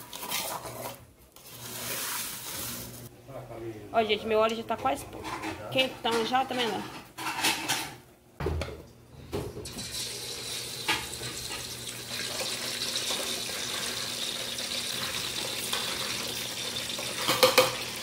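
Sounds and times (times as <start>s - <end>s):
chicken sizzling in hot oil: 9.7s - 18.0s.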